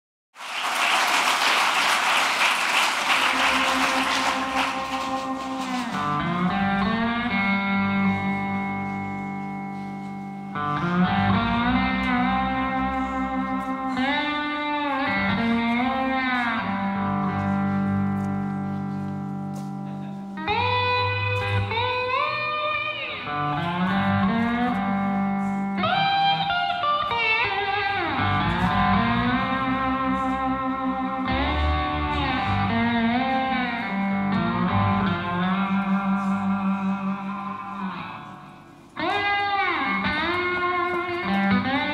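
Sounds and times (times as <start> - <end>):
electric guitar bending notes: 3.0 - 41.9
low bass line: 3.4 - 22.2, 23.3 - 26.5, 27.4 - 38.8.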